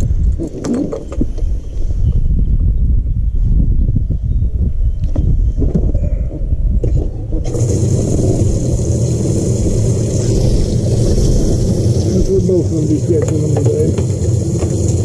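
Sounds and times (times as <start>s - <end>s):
wind noise on microphone: 0.0s - 15.0s
boat motor running: 7.4s - 15.0s
rushing hiss: 7.5s - 15.0s.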